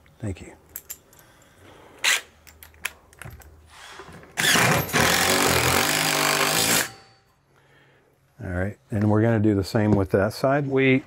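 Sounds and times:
impact driver running: 4.4 - 7.0.

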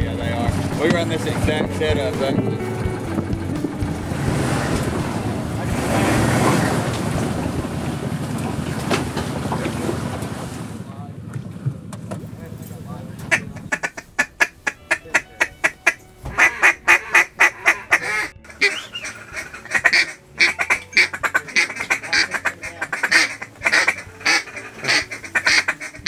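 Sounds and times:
duck quacking: 13.3 - 26.0.

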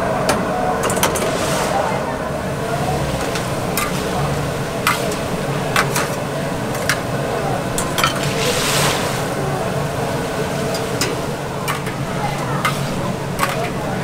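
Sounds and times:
metal ladle clinking on wok: 3.2 - 4.2, 10.7 - 13.9.

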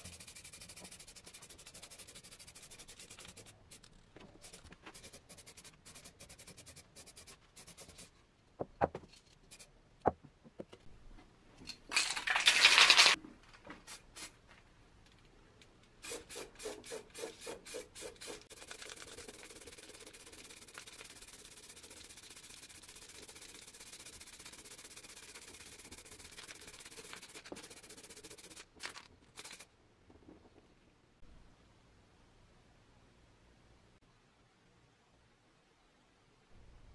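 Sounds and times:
spray can rattling: 11.9 - 13.2, 16.0 - 29.7
spray can hissing: 16.0 - 28.7, 29.4 - 29.7.

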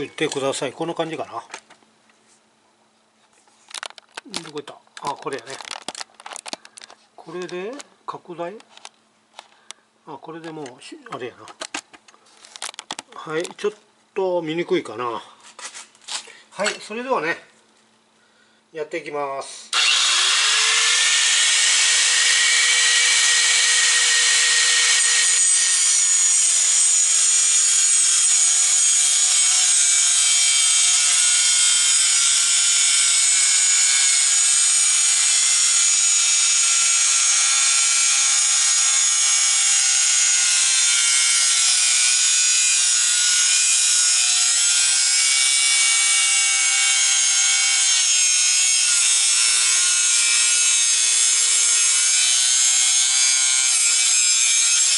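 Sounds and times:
angle grinder cutting metal: 19.7 - 54.9.

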